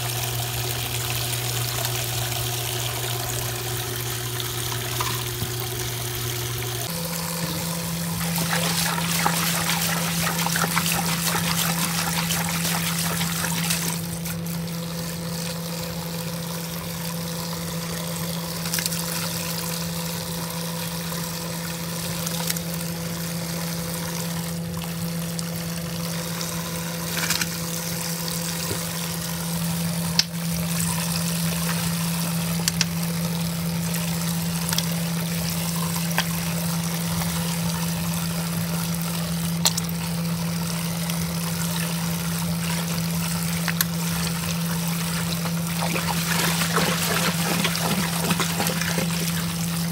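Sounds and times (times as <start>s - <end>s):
washing machine hum: 0.0s - 49.9s
water pouring onto suds: 34.4s - 49.9s.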